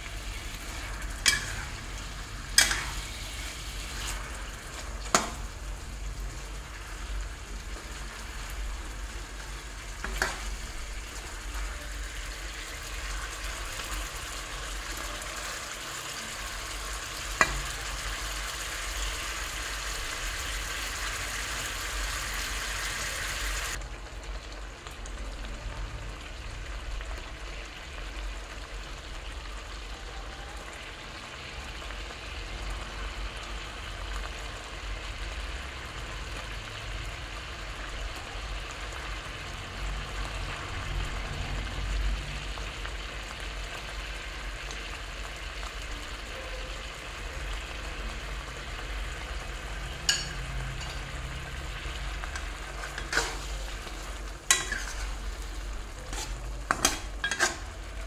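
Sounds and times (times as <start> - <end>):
food sizzling in a wok: 0.0 - 58.0
metal spatula clicking on pan: 2.6 - 2.9.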